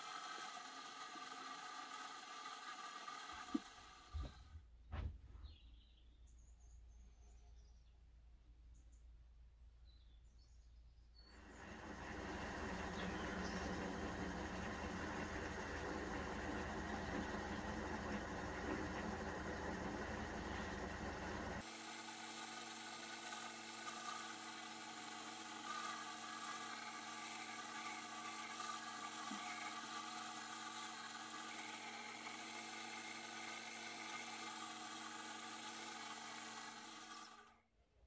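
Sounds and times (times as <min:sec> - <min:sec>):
wood lathe motor humming: 0:00.0 - 0:04.4, 0:11.4 - 0:37.6.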